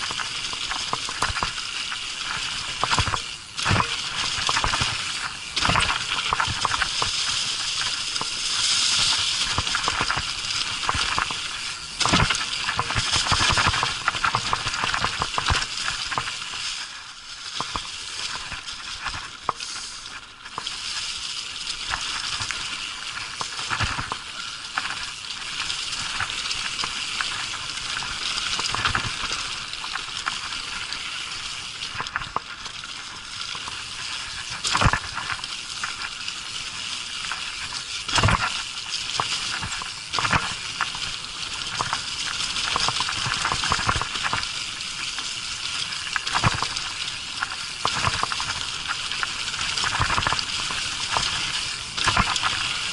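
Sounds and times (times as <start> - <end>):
bike knocks and rattles: 0.0 - 16.3
tyres rolling over dry leaves: 0.0 - 52.9.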